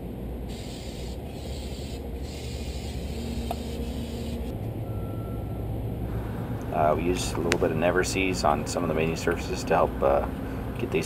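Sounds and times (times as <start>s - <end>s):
low steady rumble: 0.0s - 11.0s
aerosol can spraying: 0.5s - 4.5s.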